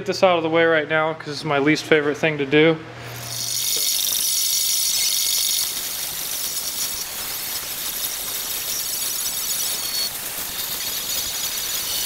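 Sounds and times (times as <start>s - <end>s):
hand grinder grinding metal: 3.2s - 12.0s.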